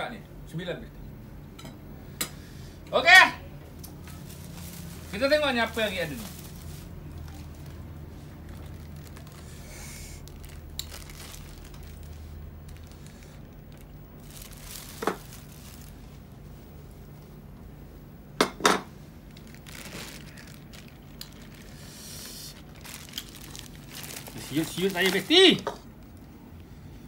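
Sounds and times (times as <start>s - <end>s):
plastic bag crinkling: 4.0s - 16.6s, 19.2s - 26.3s.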